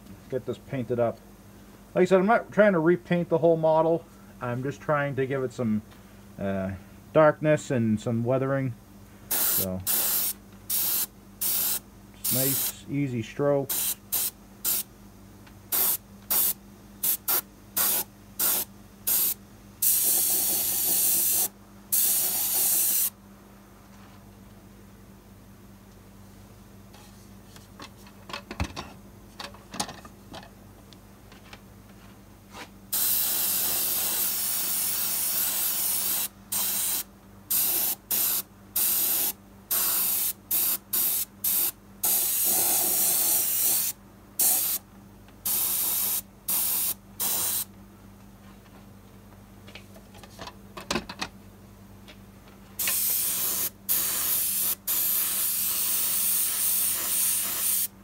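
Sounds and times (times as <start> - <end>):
airbrush air hissing: 9.3 - 12.8, 13.7 - 14.9, 15.7 - 23.2, 32.9 - 44.8, 45.5 - 47.7, 52.8 - 57.9.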